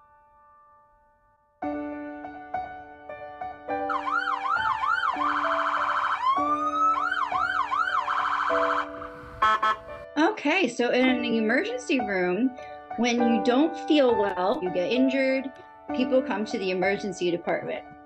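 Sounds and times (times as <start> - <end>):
background music: 0.0 - 18.0
ambulance siren: 3.9 - 10.0.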